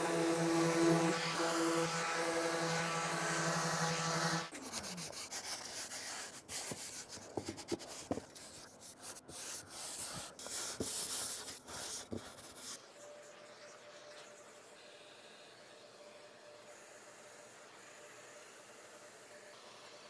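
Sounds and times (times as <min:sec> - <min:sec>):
orbit sander motor winding down: 0:00.0 - 0:04.5
hand sanding wood: 0:00.0 - 0:12.8.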